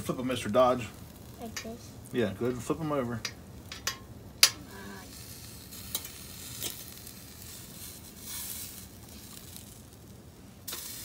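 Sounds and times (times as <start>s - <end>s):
chicken sizzling on a grill: 0.0s - 11.0s
metal tongs clicking on grate: 3.2s - 4.6s, 5.9s - 6.8s.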